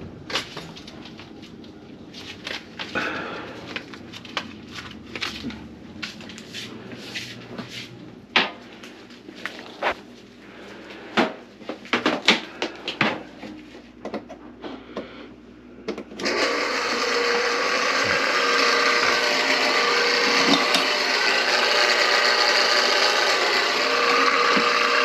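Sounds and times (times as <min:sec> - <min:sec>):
small motor running: 0:16.2 - 0:25.0.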